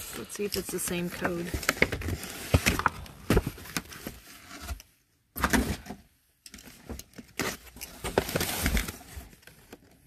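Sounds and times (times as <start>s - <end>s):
cardboard boxes scraping and rustling: 1.2s - 6.0s, 7.4s - 9.4s.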